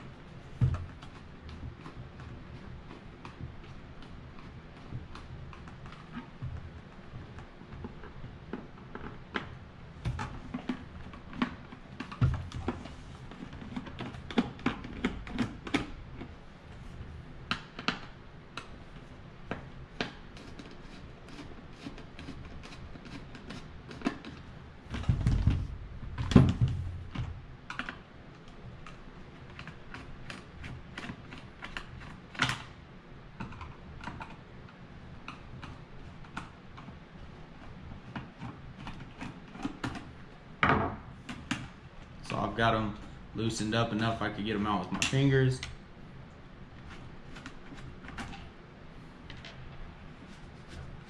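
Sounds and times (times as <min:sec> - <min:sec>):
heavier knocks and thumps: 0:24.9 - 0:27.4.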